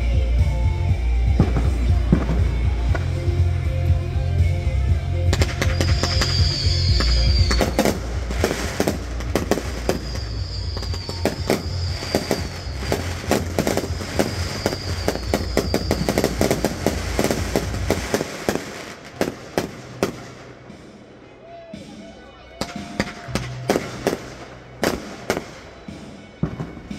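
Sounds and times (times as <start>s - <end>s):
music: 0.0s - 26.9s
fireworks bangs and crackles: 0.2s - 3.9s, 4.8s - 21.2s, 22.6s - 26.9s
rockets launching: 5.3s - 20.8s.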